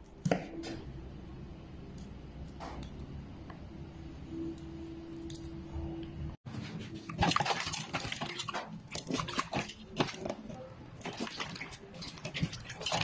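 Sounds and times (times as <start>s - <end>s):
water sloshing in metal pot: 6.9s - 13.0s.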